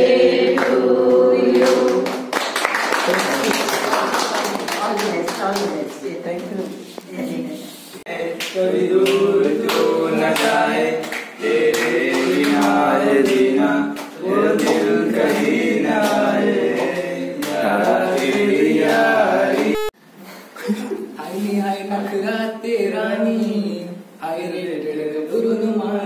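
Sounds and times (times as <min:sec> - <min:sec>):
young men singing together: 0:00.0 - 0:02.3, 0:08.0 - 0:20.0, 0:21.8 - 0:26.0.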